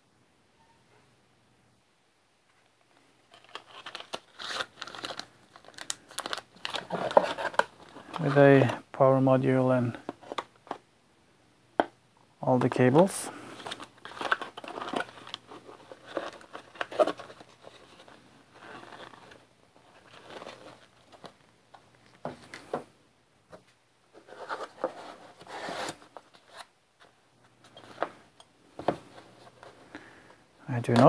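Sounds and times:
plastic bag crinkling: 3.2s - 8.4s, 13.5s - 21.4s
cardboard boxes rustling and scraping: 6.2s - 8.4s, 13.6s - 21.3s, 24.1s - 26.7s.

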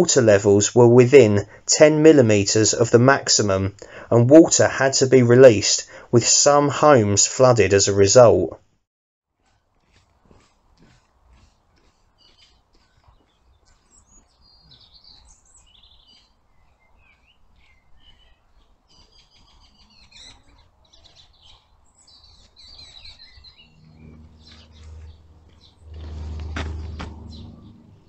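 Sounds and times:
songbirds chirping: 9.4s - 28.0s
low steady hum: 23.6s - 28.0s.

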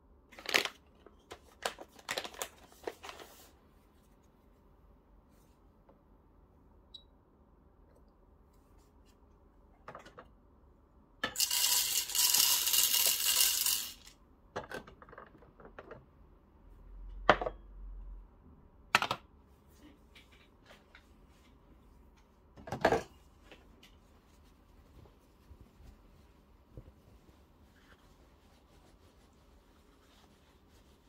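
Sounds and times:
coffee beans rattling into grinder: 11.2s - 14.1s.

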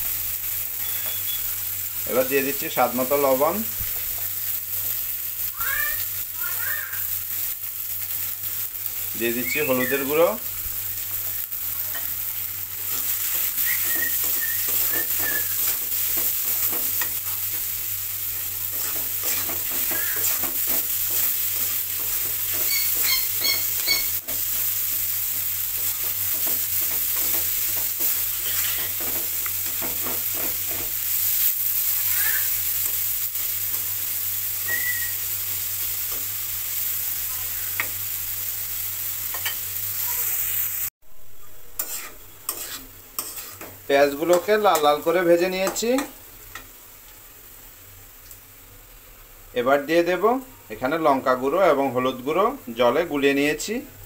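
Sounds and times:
onions sizzling in oil: 0.0s - 54.0s
spatula scraping metal pan: 18.7s - 24.4s, 41.8s - 44.5s.

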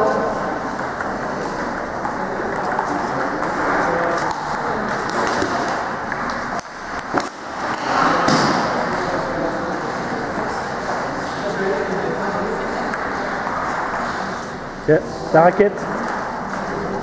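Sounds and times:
hubbub in a hall: 0.0s - 17.0s
ping pong ball clicking: 0.7s - 7.5s, 12.8s - 14.1s, 15.7s - 17.0s.

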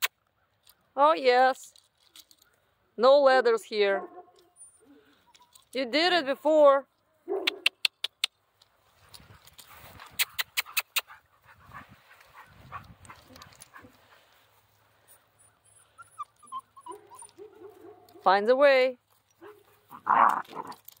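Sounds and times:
paws on gravel: 8.6s - 15.4s, 19.0s - 21.0s
puppy whimpering: 15.4s - 17.5s
puppy whining: 15.4s - 17.7s.

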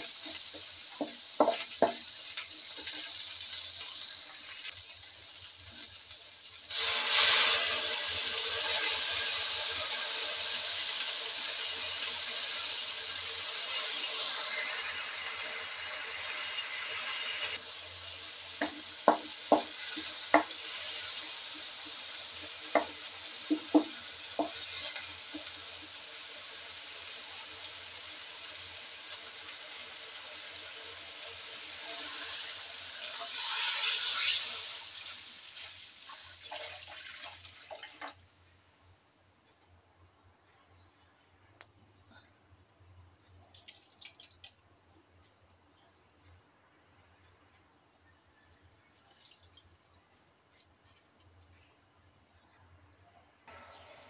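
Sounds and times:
spatula tapping a wok: 0.0s - 3.6s, 18.6s - 20.7s, 21.6s - 25.7s
onions sizzling in hot oil: 0.0s - 38.2s
water hissing in hot wok: 0.0s - 38.2s, 48.8s - 52.0s.

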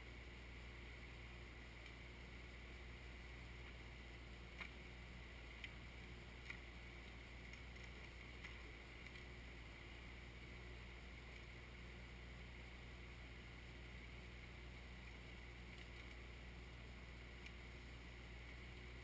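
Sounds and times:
distant tractor engine drone: 0.0s - 19.0s
faint clicks: 1.8s - 2.0s, 4.5s - 5.8s, 6.4s - 9.3s, 14.0s - 16.4s, 17.3s - 19.0s.

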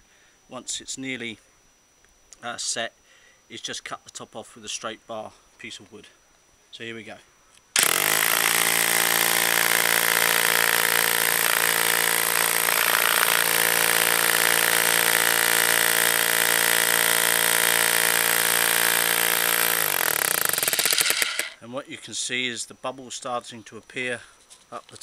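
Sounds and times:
electric hammer drill running: 7.8s - 21.6s.

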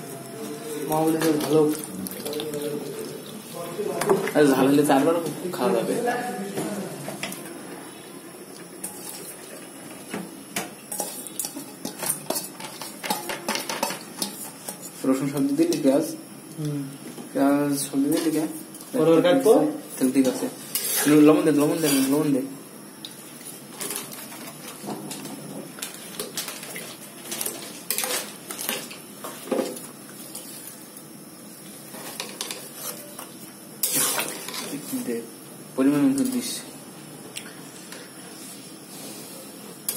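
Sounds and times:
steady hiss: 0.0s - 39.9s
spatula scraping metal wok: 20.6s - 22.2s, 33.8s - 34.9s.

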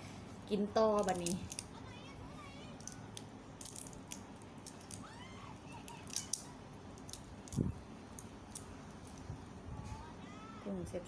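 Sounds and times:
shrimp shells crackling: 0.9s - 1.7s, 2.8s - 5.1s, 5.7s - 9.3s.

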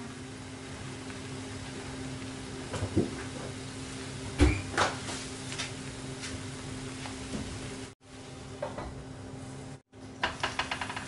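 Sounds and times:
batter sizzling in a frying pan: 0.0s - 8.0s.

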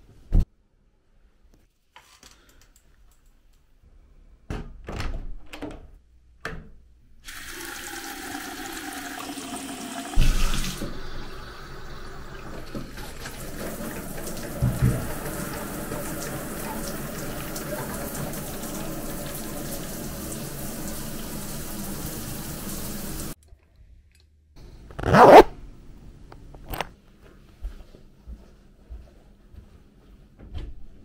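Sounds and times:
shower water spraying: 7.3s - 23.4s.

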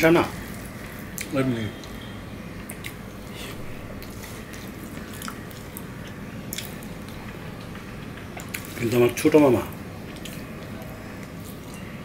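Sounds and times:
mouth chewing food: 4.0s - 8.8s, 10.1s - 11.9s.

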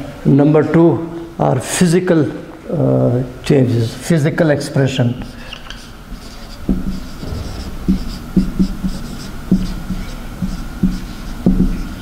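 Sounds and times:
faint steady hum: 0.0s - 12.0s
marker squeaking on whiteboard: 5.1s - 12.0s.

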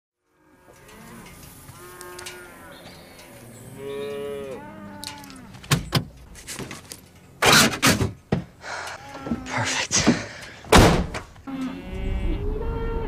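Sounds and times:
cow mooing: 0.3s - 5.6s, 11.4s - 13.0s.

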